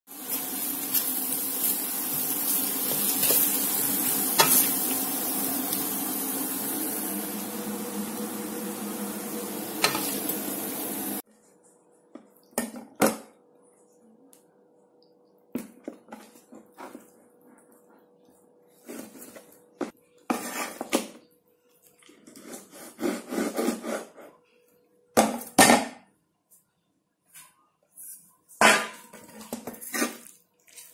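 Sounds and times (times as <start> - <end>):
food sizzling in a wok: 0.1 - 11.2
spatula clanking on metal: 4.4 - 4.8.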